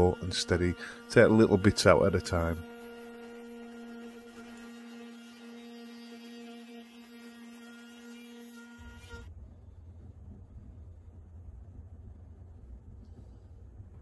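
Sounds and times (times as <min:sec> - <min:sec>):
steady hum with overtones: 0:00.0 - 0:05.1.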